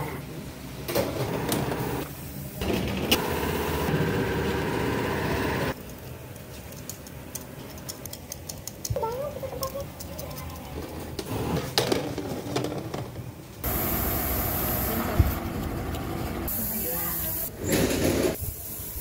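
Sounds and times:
bakery machinery humming: 0.0 - 6.3, 13.6 - 16.9.

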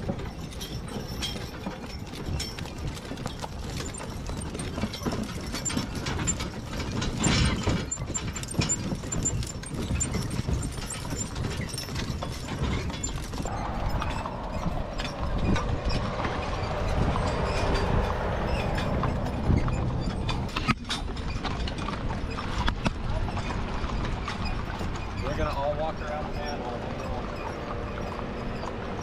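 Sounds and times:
harness chains jingling: 0.0 - 22.5
mule hooves: 0.0 - 29.0
wagon running gear rattling: 0.0 - 29.0.

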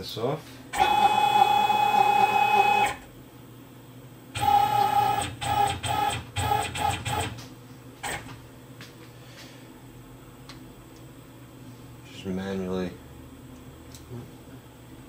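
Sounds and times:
lathe axis drive whining: 0.8 - 3.0, 4.4 - 7.4.

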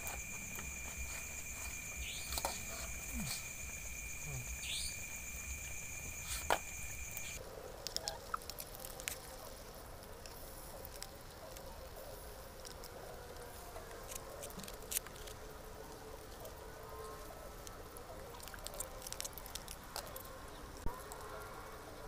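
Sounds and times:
high insect trill: 0.0 - 7.4.

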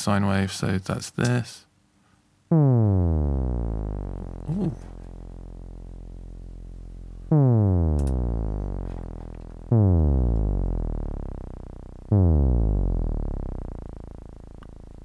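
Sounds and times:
synth notes swooping down: 2.5 - 5.2, 7.2 - 14.6
low synth hum: 2.5 - 15.0.

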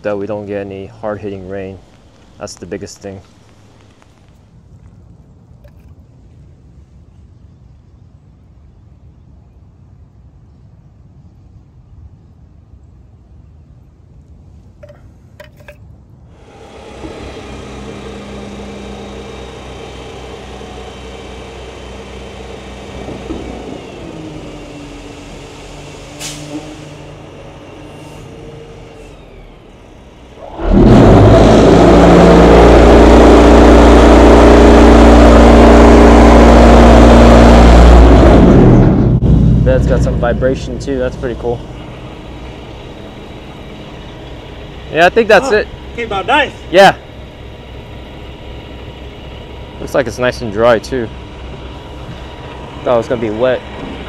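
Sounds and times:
diesel truck engine running: 0.0 - 4.6, 16.3 - 54.0.

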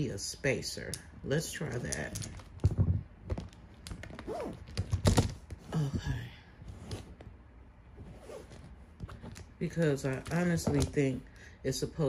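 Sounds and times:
resin parts clicking and knocking: 0.8 - 5.6.

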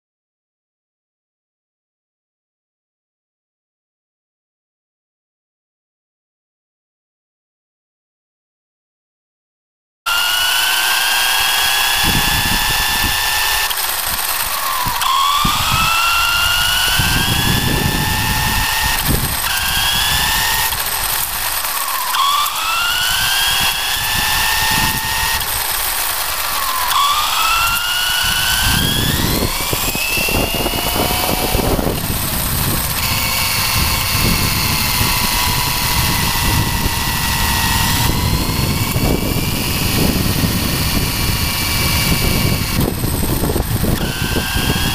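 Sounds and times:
electric motor whining: 10.1 - 44.9.

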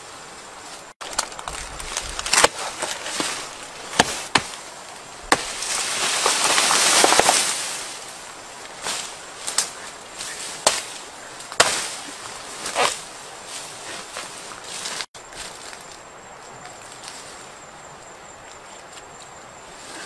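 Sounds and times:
rustling crash of falling leaves: 0.0 - 16.0
machete chopping plant trunk: 2.2 - 4.6, 5.3 - 7.5, 10.6 - 12.0.

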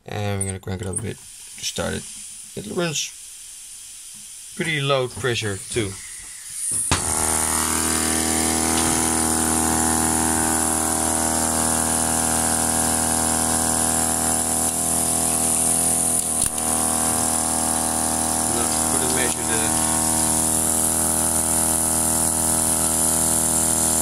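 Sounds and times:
high air hiss: 1.2 - 24.0
mechanical oscillator humming: 7.0 - 24.0.

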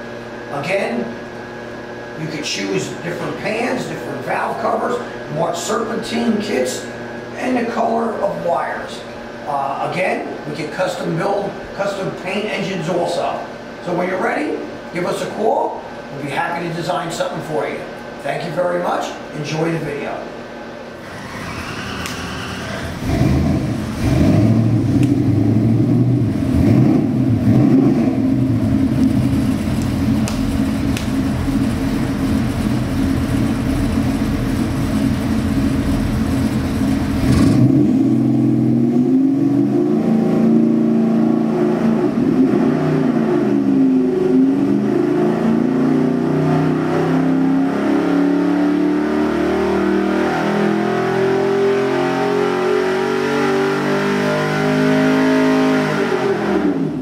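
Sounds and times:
engine revving on dyno: 21.0 - 57.0.

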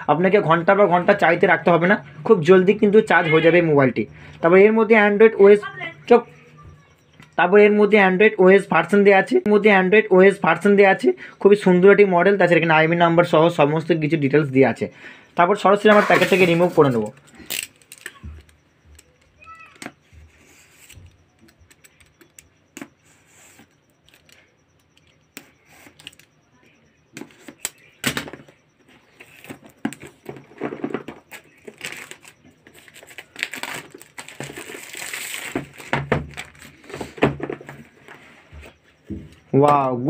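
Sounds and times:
plastic wrap rustling and crackling: 30.8 - 36.8.

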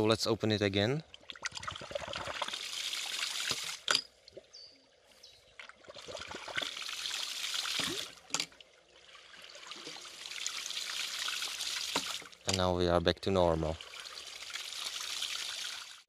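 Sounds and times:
water gushing from pump: 1.4 - 3.9, 5.9 - 12.4, 13.5 - 16.0.

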